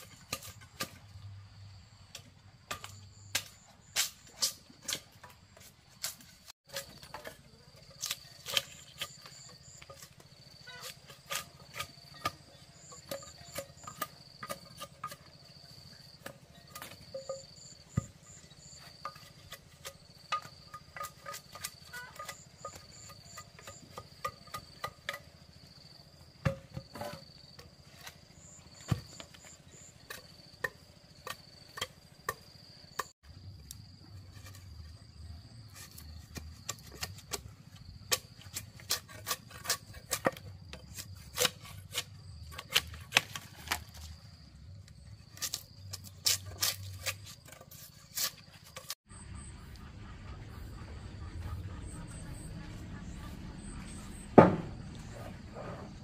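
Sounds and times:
insects trilling: 0:06.7 - 0:56.0
machete chopping wooden post: 0:26.4 - 0:27.3, 0:38.1 - 0:44.2, 0:54.4 - 0:54.8.

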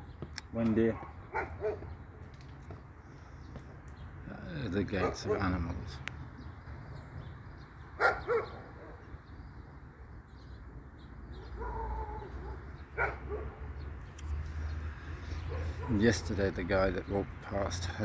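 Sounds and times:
dog barking: 0:00.9 - 0:01.9, 0:04.9 - 0:05.6, 0:08.0 - 0:09.1, 0:11.4 - 0:13.8, 0:15.5 - 0:16.1.

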